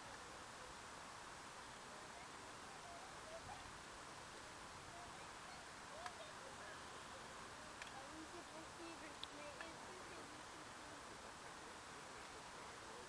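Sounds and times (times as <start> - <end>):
faint distant calls: 0.0 - 13.0
faint steady hiss: 0.0 - 13.0
small click: 7.8 - 8.0.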